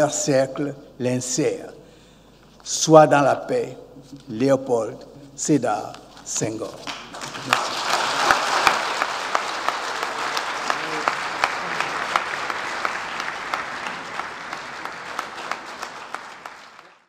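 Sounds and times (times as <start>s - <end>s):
audience applauding: 6.9s - 17.0s.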